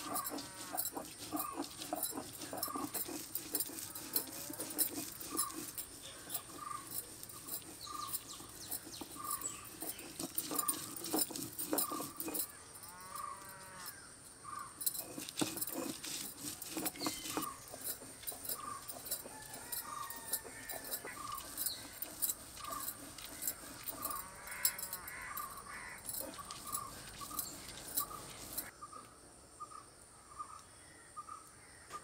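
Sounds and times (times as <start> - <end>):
stone roller scraping on grinding stone: 0.0 - 28.7
crows cawing: 24.1 - 26.3.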